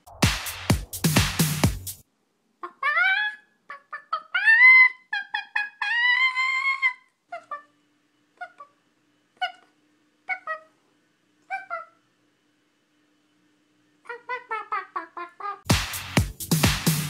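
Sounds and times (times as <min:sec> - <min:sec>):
woman imitating animal calls: 0:02.6 - 0:07.7.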